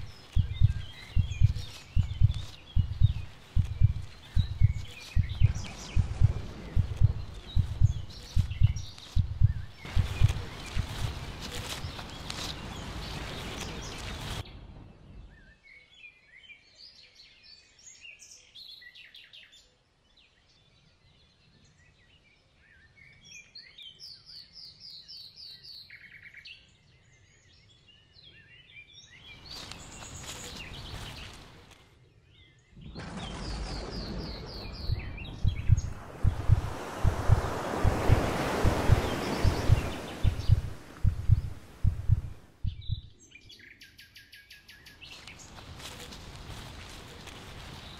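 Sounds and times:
rustling noise: 0.0s - 14.5s, 29.3s - 32.0s, 45.0s - 47.9s
small birds chirping and trilling: 0.0s - 41.9s, 42.6s - 47.9s.

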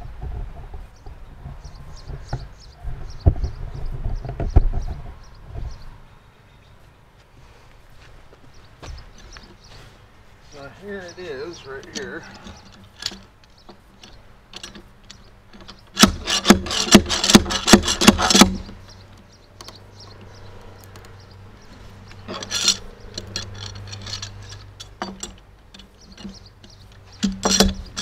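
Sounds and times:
pliers scraping into wood: 11.8s - 18.8s, 22.0s - 28.0s.

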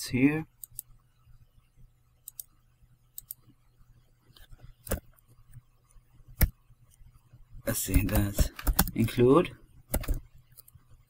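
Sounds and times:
low steady hum: 0.0s - 11.0s
mouse and keyboard clicks: 4.4s - 5.2s, 9.9s - 10.8s.

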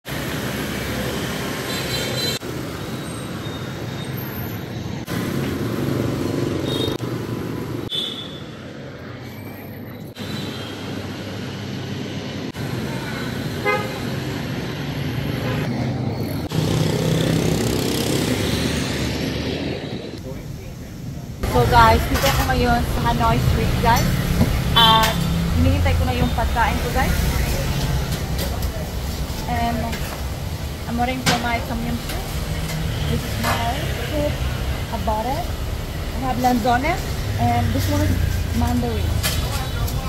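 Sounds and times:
motorbike and scooter engines: 0.1s - 40.0s
horns beeping: 21.4s - 27.4s.

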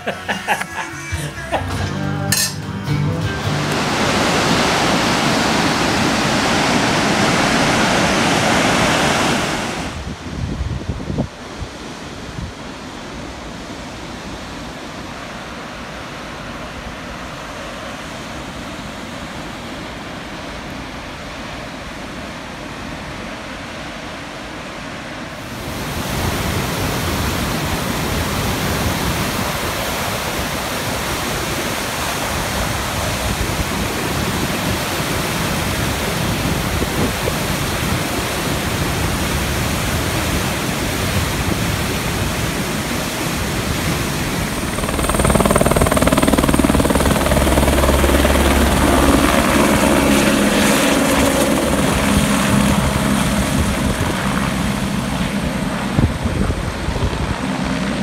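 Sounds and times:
river rapids roaring: 0.0s - 10.3s, 11.3s - 56.0s.

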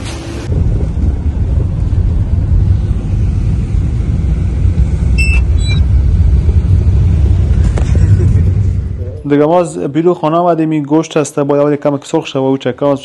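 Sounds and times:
car road and engine drone: 0.0s - 10.0s
high-pitched chirps: 5.2s - 5.8s.

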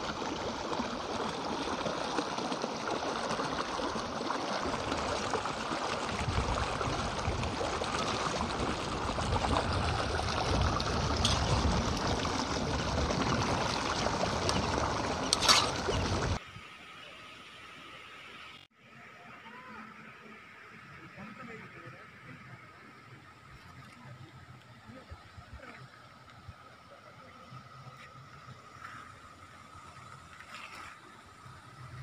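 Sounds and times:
water gurgling over rocks: 0.0s - 16.4s.

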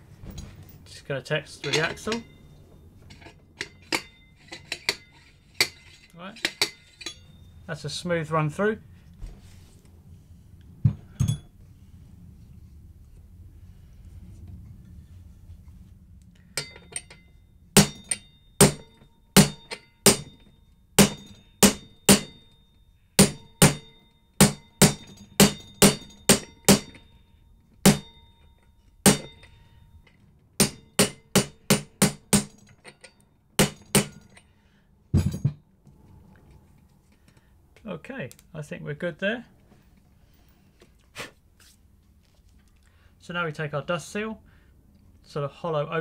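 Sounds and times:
hammer striking metal socket: 3.1s - 7.3s, 16.6s - 22.6s, 23.2s - 27.1s, 27.8s - 29.6s, 30.6s - 34.5s.

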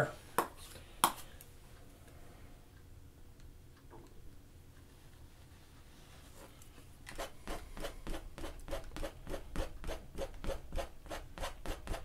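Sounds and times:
painting knife scraping canvas: 6.2s - 12.0s.

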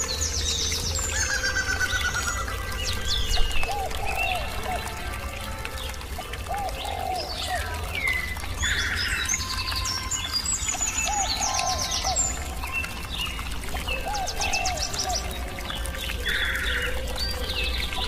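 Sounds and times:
small birds chirping and trilling: 0.0s - 18.0s.

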